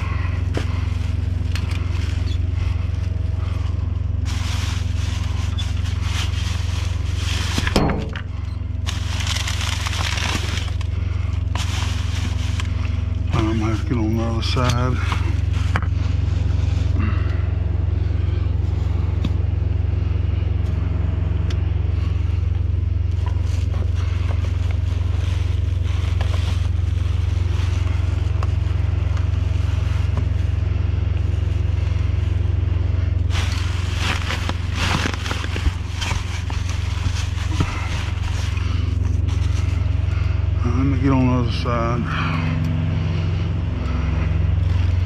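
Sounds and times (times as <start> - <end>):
items scraped and rustled: 0.0 - 17.0, 23.0 - 30.6, 31.4 - 40.4
vehicle engine idling: 0.0 - 45.0.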